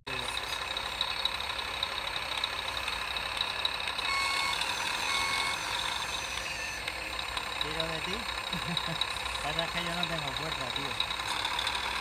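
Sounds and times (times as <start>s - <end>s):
electric motors whirring: 0.2s - 12.0s
reversing beeps: 4.0s - 6.9s.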